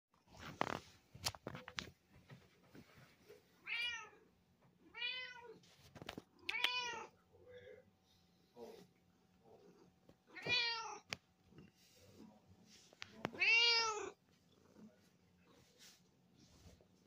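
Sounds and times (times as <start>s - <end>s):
cat meowing: 4.9s - 5.6s, 6.5s - 7.1s, 10.3s - 11.1s, 13.3s - 14.2s.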